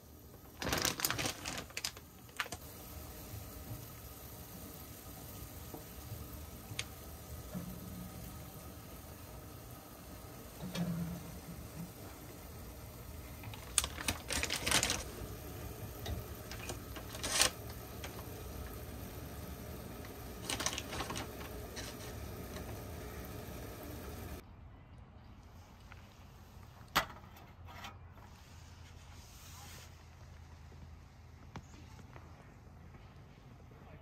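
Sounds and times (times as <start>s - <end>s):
fish cakes bubbling in hot oil: 1.3s - 24.4s.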